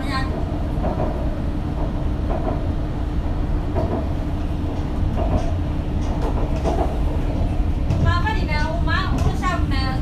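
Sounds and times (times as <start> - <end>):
metro train rumbling: 0.0 - 10.0
wheels clicking on rails: 3.7 - 10.0.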